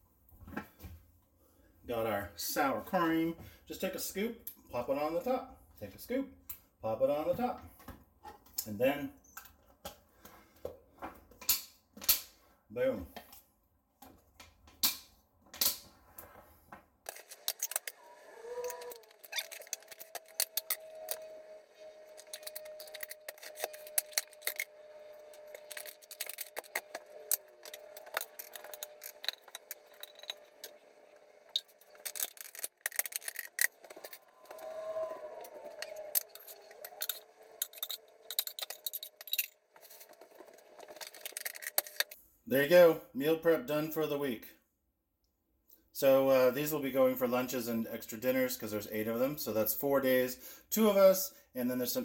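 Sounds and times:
plastic containers clicking and rattling: 22.2s - 30.8s.

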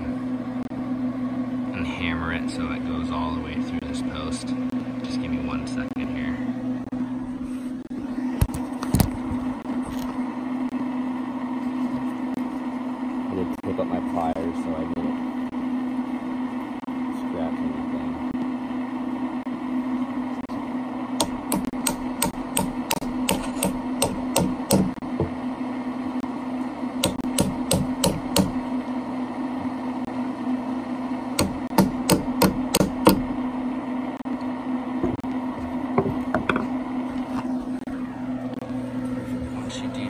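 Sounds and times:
pellet grill humming: 0.0s - 40.0s
hammer tapping on metal pliers: 21.2s - 25.3s, 27.0s - 28.6s, 31.4s - 33.3s.

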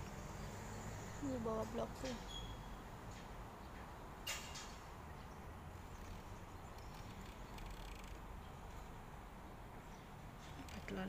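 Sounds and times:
car driving past: 0.0s - 1.6s
traffic rumble: 0.0s - 11.0s.

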